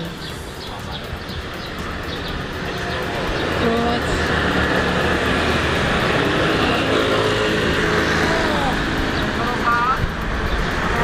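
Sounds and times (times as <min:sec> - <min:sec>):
motor scooters passing: 0:00.0 - 0:11.0
road traffic: 0:00.0 - 0:11.0.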